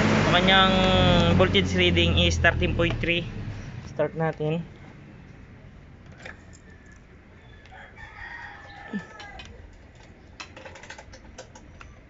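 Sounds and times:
rooster crowing: 6.5 - 9.7.

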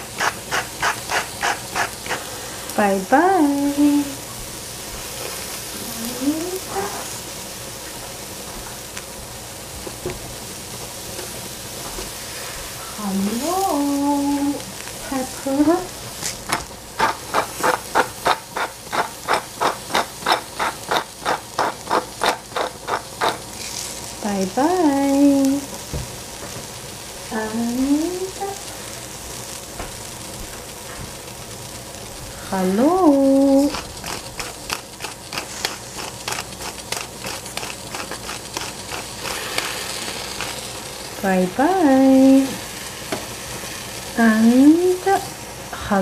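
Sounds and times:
pepper mill grinding: 0.0 - 2.3, 15.8 - 24.1, 33.2 - 41.2.

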